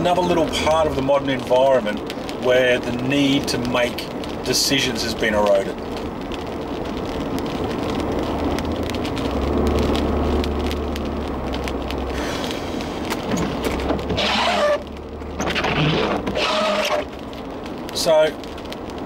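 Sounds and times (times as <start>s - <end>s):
road and tyre noise: 0.0s - 19.0s
low engine drone: 9.0s - 17.2s.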